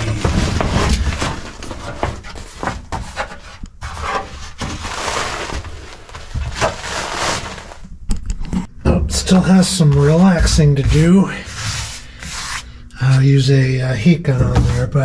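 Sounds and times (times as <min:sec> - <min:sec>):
rubber mat rustling and scuffing: 0:00.0 - 0:07.9.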